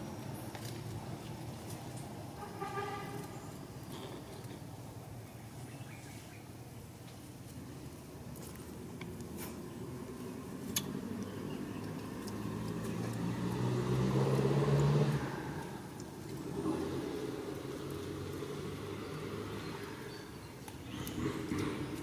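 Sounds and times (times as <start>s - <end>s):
vehicle engine passing: 9.3s - 22.0s.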